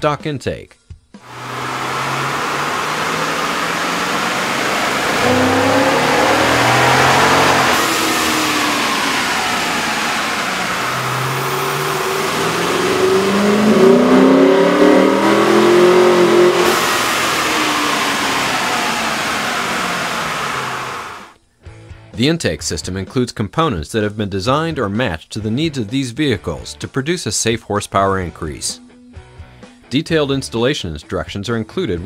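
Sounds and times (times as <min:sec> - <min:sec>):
engine revving under load: 0:01.2 - 0:21.3.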